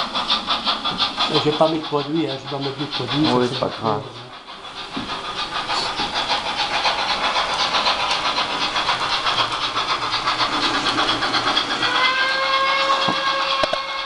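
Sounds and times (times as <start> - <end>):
steam locomotive chuffs: 0.0 - 14.0
steam whistle chord: 11.9 - 14.0.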